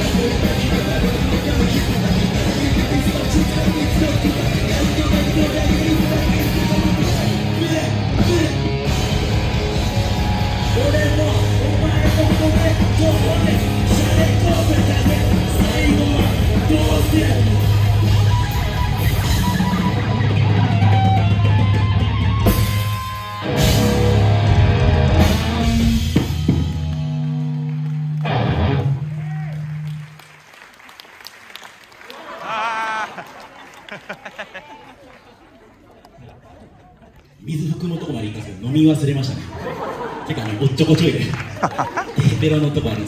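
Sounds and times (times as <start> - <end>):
live rock band playing: 0.0 - 30.0.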